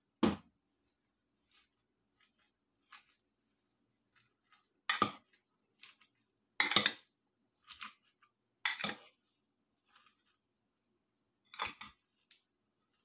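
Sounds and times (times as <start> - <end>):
metal spoon scraping ceramic bowl: 6.6 - 7.0, 8.6 - 9.2.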